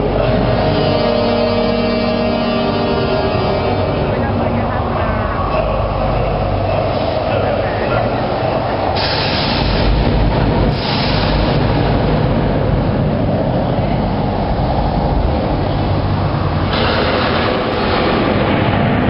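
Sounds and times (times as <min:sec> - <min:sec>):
loud deep rumbling: 0:00.0 - 0:19.0
hiss: 0:10.7 - 0:11.7.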